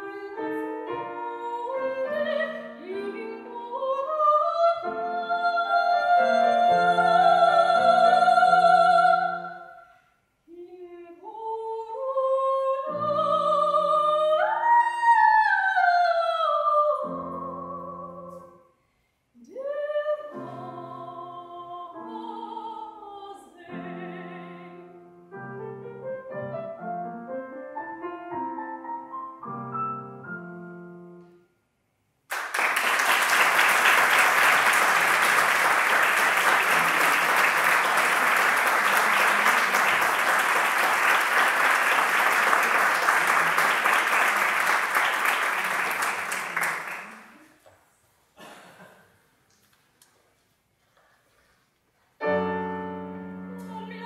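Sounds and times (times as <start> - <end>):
grand piano: 0.0 - 9.7, 12.3 - 18.6, 19.7 - 31.6, 52.2 - 54.0
soprano singing: 0.0 - 9.8, 10.5 - 18.6, 19.4 - 26.4, 52.2 - 54.0
audience applauding: 32.3 - 47.5.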